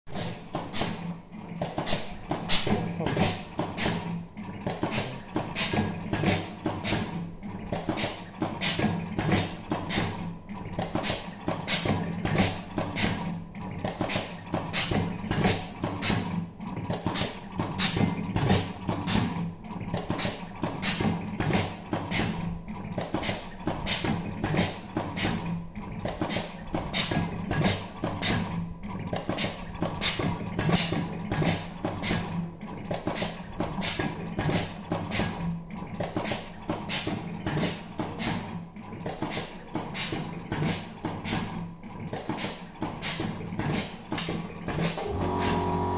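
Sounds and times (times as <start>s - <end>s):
feed motors humming: 44.8s - 45.9s.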